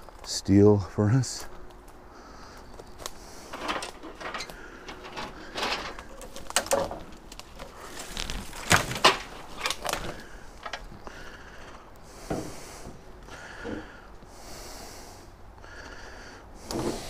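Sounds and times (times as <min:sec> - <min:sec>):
footsteps crunching through brush: 0:07.0 - 0:11.0.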